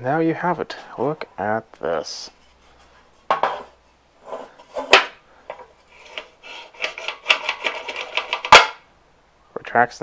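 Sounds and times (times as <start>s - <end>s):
starter rope rasping: 5.9s - 8.5s.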